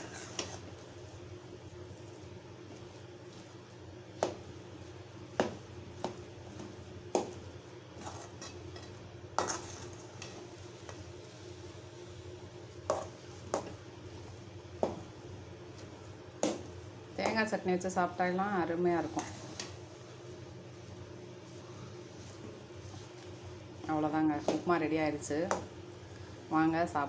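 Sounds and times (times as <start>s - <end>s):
metal ladle scraping a pot: 0.0s - 0.6s, 8.0s - 10.4s
steady low hum: 0.0s - 27.0s.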